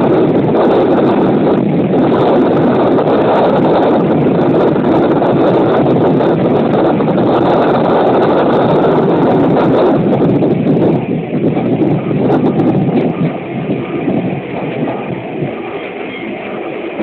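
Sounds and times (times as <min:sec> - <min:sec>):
railcar running noise: 0:00.0 - 0:17.0
wind rush on microphone: 0:00.0 - 0:17.0.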